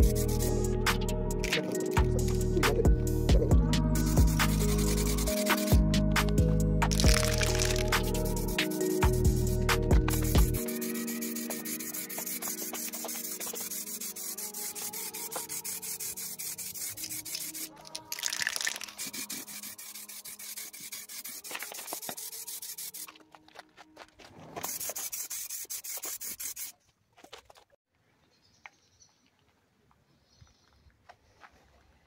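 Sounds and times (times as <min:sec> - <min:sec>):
music outro: 0:00.0 - 0:13.4.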